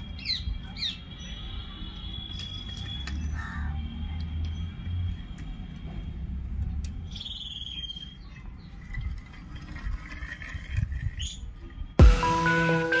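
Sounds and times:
bird chirping: 7.0s - 8.9s
electronic music: 12.0s - 13.0s.

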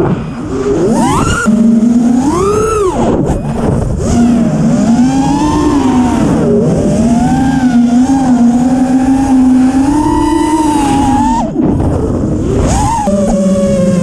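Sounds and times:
drone motor whine: 0.0s - 14.0s.

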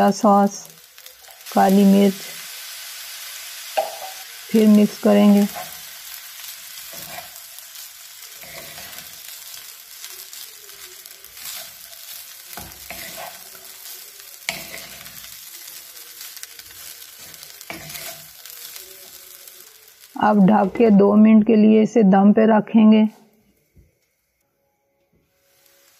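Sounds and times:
frying sizzle: 0.0s - 21.4s, 25.2s - 25.9s
wooden spatula scraping rice: 8.2s - 19.3s.

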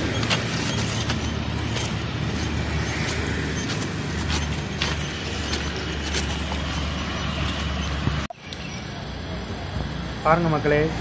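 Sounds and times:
footsteps crunching on gravel: 0.0s - 8.2s.

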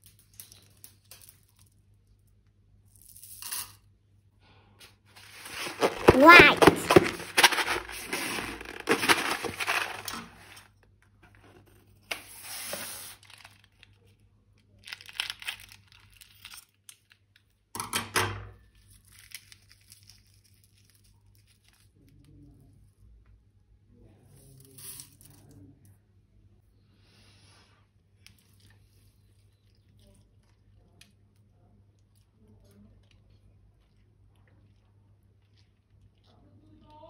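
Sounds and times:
crinkling and tearing material: 5.2s - 10.7s.

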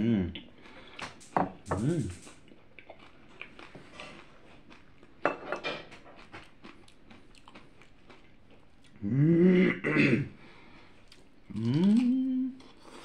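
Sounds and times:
crunchy chewing: 0.6s - 5.2s, 5.8s - 9.0s.

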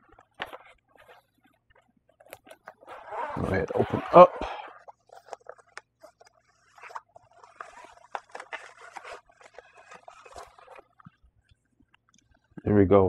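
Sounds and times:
faint plastic clicks and scrapes: 0.0s - 12.7s
zipper: 2.4s - 11.0s
fabric rustling: 4.9s - 11.4s.

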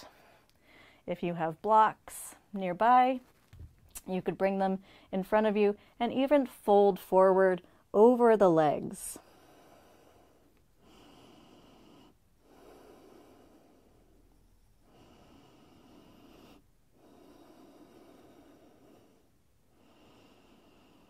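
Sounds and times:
slow human breathing: 0.0s - 1.1s, 4.8s - 5.1s, 9.2s - 21.0s.

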